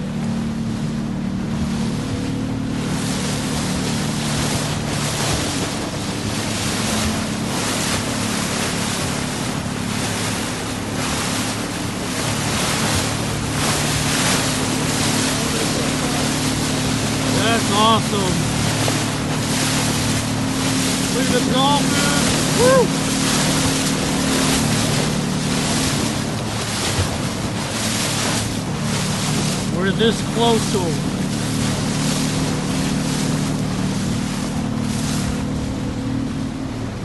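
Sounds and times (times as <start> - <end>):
motorboat engine: 0.0 - 37.0
water splashing along hull: 0.0 - 37.0
wind buffeting microphone: 18.1 - 29.8.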